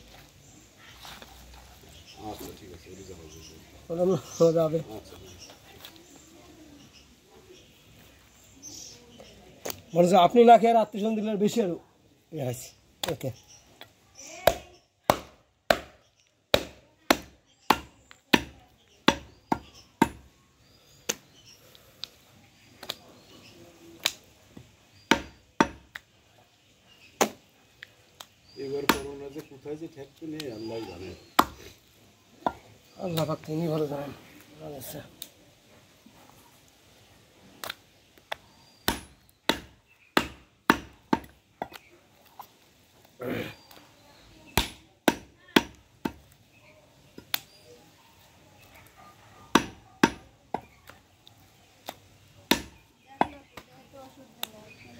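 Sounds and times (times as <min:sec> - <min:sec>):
cleaver chopping ribs on wood block: 0:14.4 - 0:20.3, 0:24.0 - 0:26.0, 0:28.8 - 0:29.2, 0:31.4 - 0:31.7, 0:37.6 - 0:41.9, 0:44.5 - 0:46.4, 0:49.5 - 0:51.0, 0:51.8 - 0:53.7.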